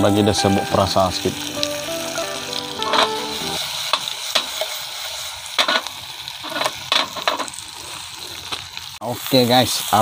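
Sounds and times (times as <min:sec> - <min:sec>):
fish sizzling in a pan: 0:00.0 - 0:10.0
clicks and scrapes in pan: 0:05.6 - 0:07.6.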